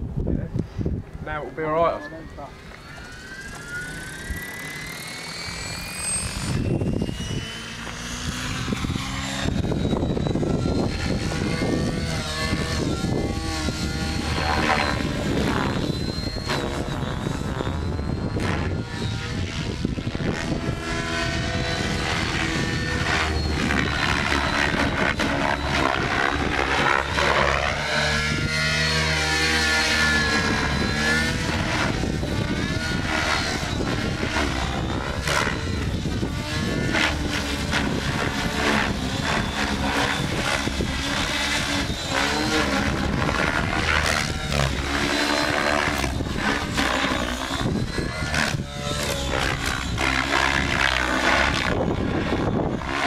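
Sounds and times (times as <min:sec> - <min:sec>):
rc helicopter rotor whine: 0:00.0 - 0:53.0.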